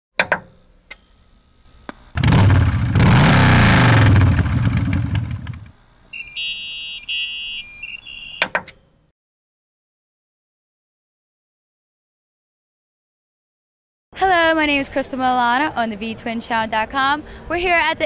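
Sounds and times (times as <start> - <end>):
engine revving: 2.1 - 5.7
electronic beeping: 6.1 - 8.6.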